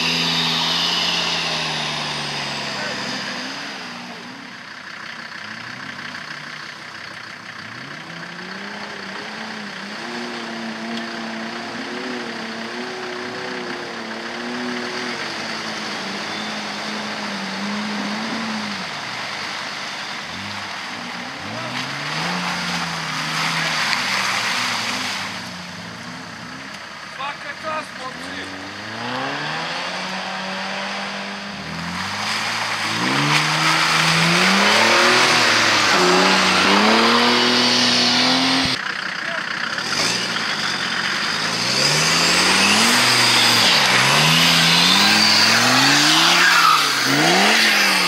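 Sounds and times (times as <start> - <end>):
off-road engine revving in mud: 0.0 - 48.0
tyres spinning in mud: 18.2 - 25.6.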